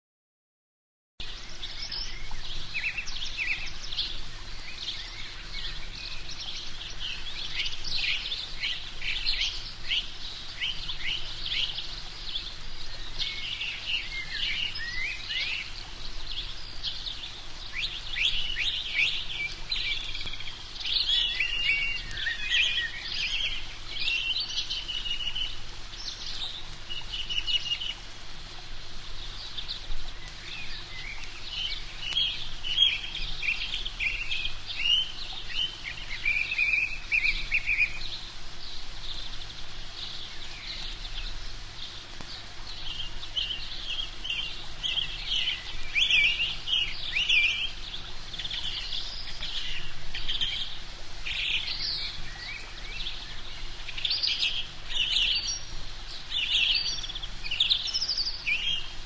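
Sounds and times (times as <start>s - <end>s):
birds chirping and calling: 1.2s - 28.2s, 29.0s - 59.0s.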